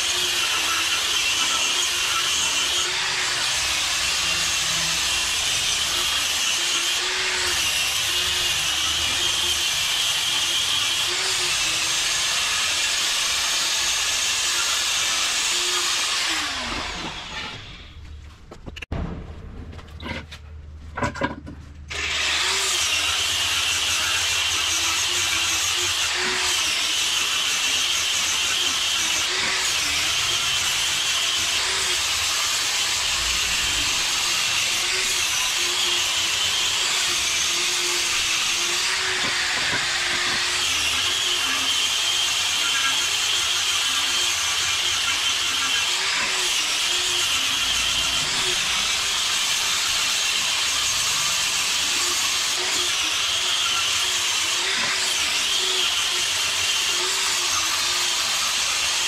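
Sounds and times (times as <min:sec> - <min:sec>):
power tool grinding: 0:00.0 - 0:18.2, 0:21.0 - 0:59.0.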